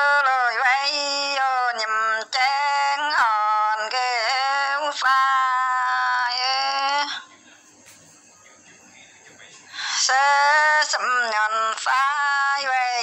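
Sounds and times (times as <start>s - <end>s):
woman singing long held notes: 9.9s - 13.0s.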